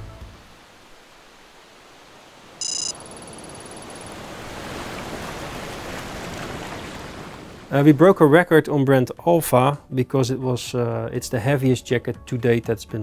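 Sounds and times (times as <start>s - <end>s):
high electronic ping: 2.6s - 4.0s
thin ringing tone: 2.6s - 4.2s.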